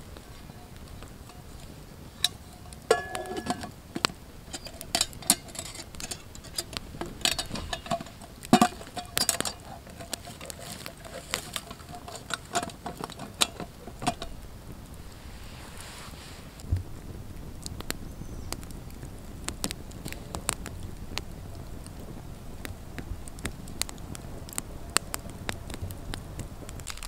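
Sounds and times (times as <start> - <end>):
campfire crackling: 0.0 - 27.0
metal pot and lid clinking: 0.3 - 14.4
metallic ring: 1.3 - 3.7.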